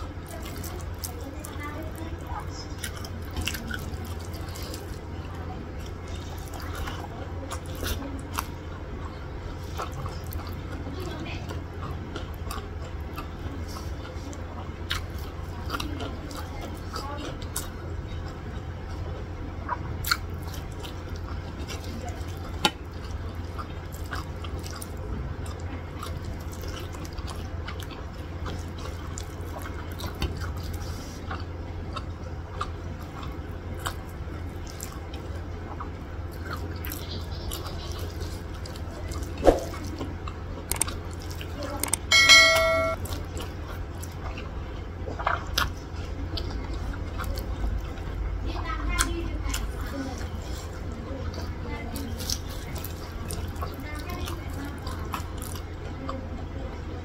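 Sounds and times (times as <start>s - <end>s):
steady low hum: 0.0s - 57.0s
wet chewing and mouth sounds: 0.0s - 57.0s
brief high-pitched tone: 42.1s - 43.0s.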